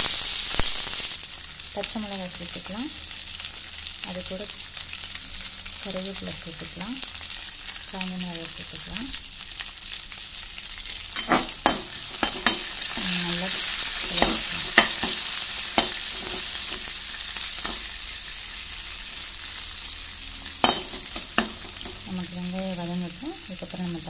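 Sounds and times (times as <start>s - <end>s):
vegetables sizzling in hot oil: 0.0s - 24.0s
metal spatula scraping pan: 11.1s - 18.0s, 20.3s - 22.1s.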